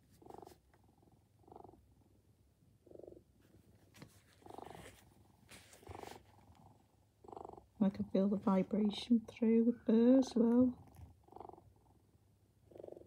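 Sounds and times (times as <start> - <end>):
hands rustling plush fur: 3.8 - 6.4
electronic cat purr: 5.9 - 9.1, 10.2 - 12.0, 12.6 - 13.0.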